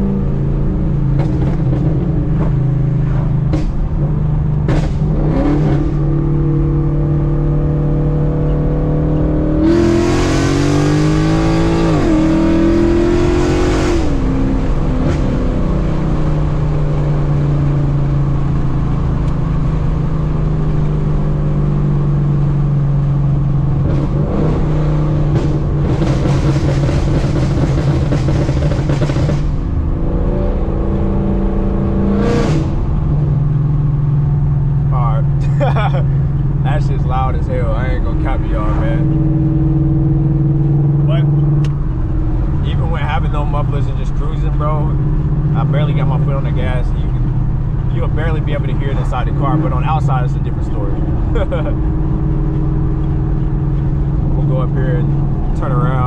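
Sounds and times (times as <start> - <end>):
car engine revving: 0.0 - 56.0
loud car exhaust: 0.0 - 56.0.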